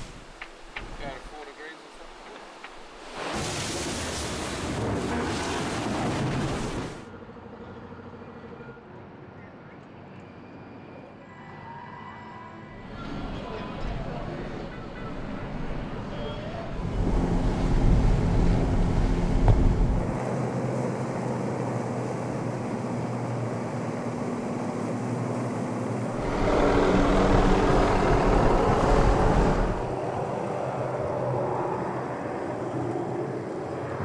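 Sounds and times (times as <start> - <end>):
rushing water: 0.0 - 7.1, 16.7 - 31.0
wind: 0.0 - 34.0
motorboat engine running: 16.8 - 30.1.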